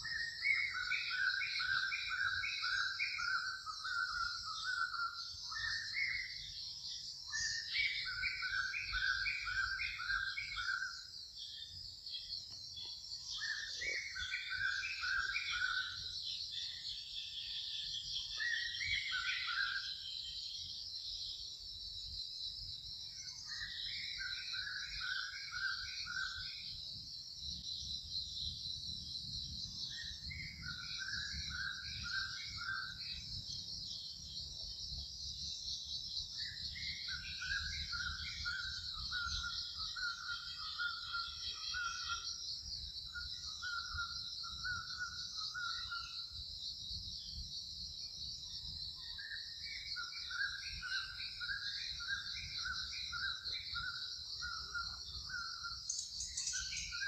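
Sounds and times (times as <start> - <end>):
high-pitched insect chorus: 0.0 - 57.0
bird whistling: 50.3 - 57.0.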